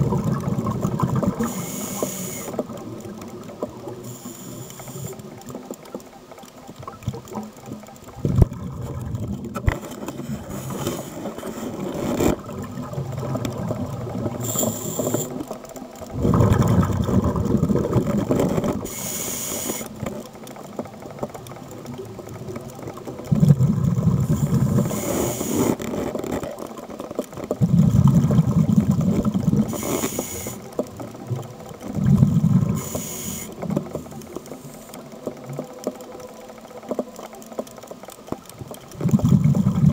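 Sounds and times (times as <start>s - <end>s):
exhaled bubbles underwater: 0.0s - 39.9s
regulator hissing inhalations: 1.4s - 2.6s, 14.4s - 15.4s, 18.9s - 19.9s, 24.8s - 25.8s, 29.7s - 30.7s, 32.7s - 33.6s.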